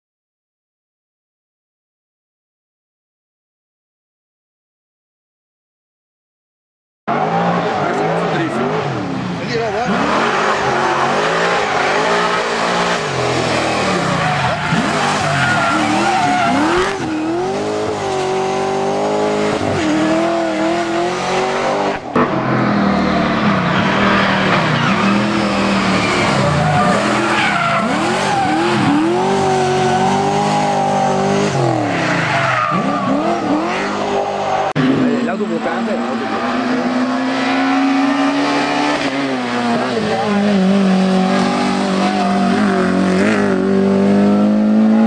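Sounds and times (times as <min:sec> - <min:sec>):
race car engines accelerating: 0:07.1 - 0:45.0
tyres squealing: 0:09.7 - 0:18.4, 0:23.8 - 0:35.1.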